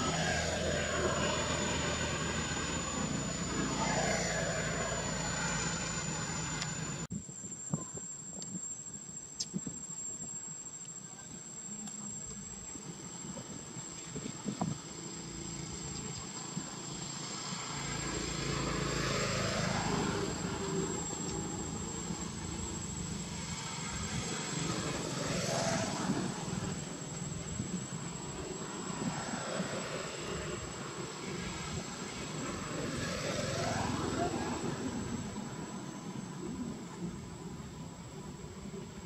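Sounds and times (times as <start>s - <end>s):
motor vehicle passing by: 0.0s - 7.1s, 17.3s - 26.8s, 28.8s - 35.5s.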